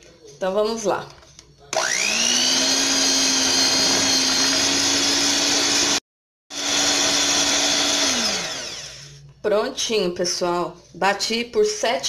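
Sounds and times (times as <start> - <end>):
electric hand mixer whine: 1.7 - 9.2.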